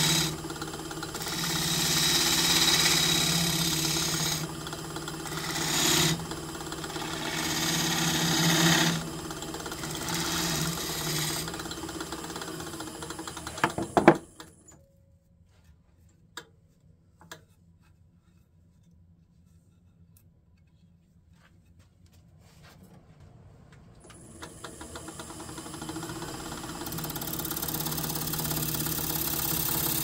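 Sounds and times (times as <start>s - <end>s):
gouge cutting spinning wood: 0.0s - 14.2s, 24.1s - 30.0s
lathe motor hum: 0.0s - 14.2s, 24.0s - 30.0s.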